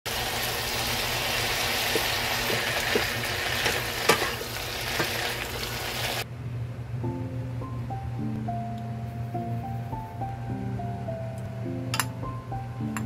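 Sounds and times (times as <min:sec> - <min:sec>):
vegetables sizzling in a pan: 0:00.1 - 0:06.2.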